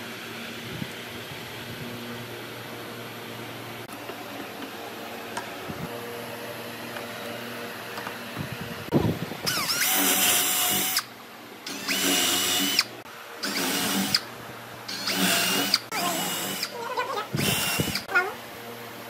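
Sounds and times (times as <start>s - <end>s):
power drill boring into wood: 9.5s - 11.1s, 11.7s - 14.2s, 14.9s - 18.1s.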